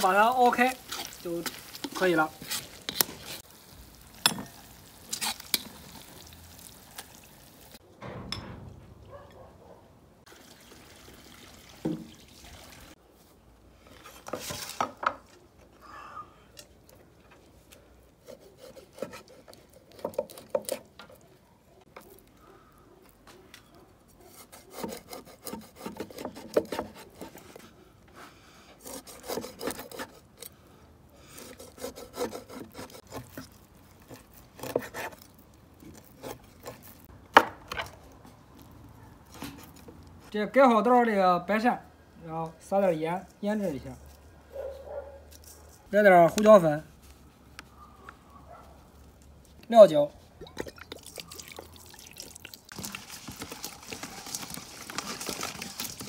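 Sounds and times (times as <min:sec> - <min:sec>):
cleaver cutting on wooden board: 0:18.2 - 0:20.9, 0:24.2 - 0:27.6, 0:28.8 - 0:30.5, 0:31.4 - 0:37.1.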